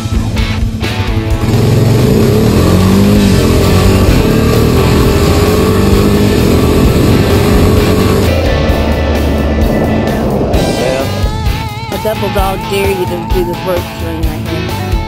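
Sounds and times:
atv engine running under load: 0:00.0 - 0:15.0.

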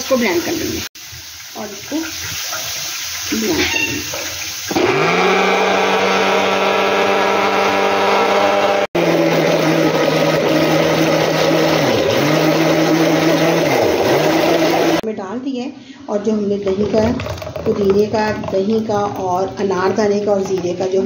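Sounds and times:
blender motor hum: 0:04.7 - 0:15.0.

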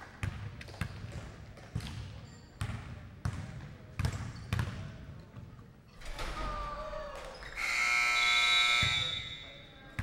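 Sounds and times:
scoreboard buzzer: 0:07.6 - 0:09.6.

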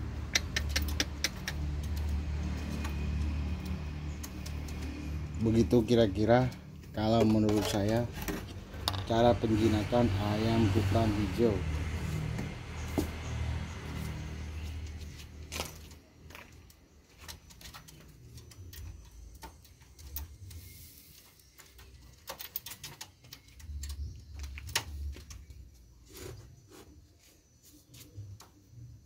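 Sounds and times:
light clicks and taps on wire cage: 0:00.1 - 0:08.0, 0:14.6 - 0:20.6, 0:21.2 - 0:25.5.

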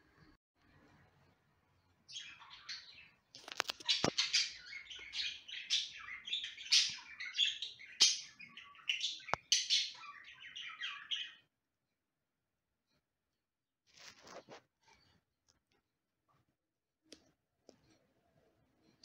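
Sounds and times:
budgerigars chattering and warbling: 0:02.1 - 0:11.4.

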